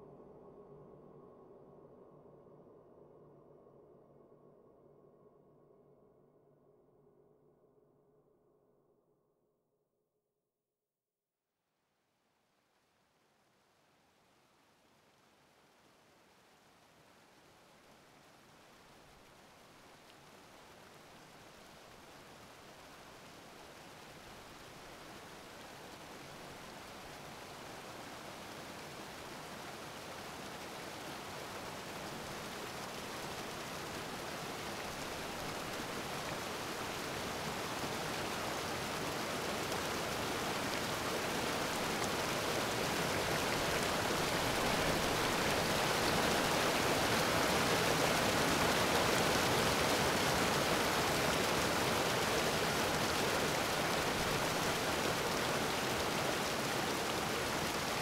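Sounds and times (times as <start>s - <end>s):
steady rushing hiss: 20.2s - 58.0s.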